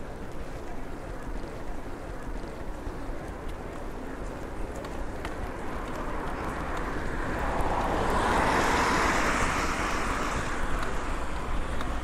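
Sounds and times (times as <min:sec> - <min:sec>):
wind rumble on microphone: 0:02.6 - 0:12.0
car tyres hissing on wet road: 0:06.0 - 0:12.0.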